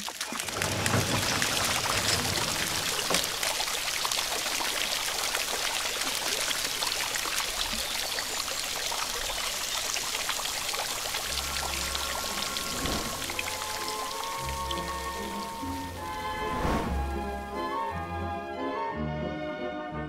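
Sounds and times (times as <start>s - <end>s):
water pouring and splashing: 0.0s - 18.4s
music: 11.3s - 20.0s.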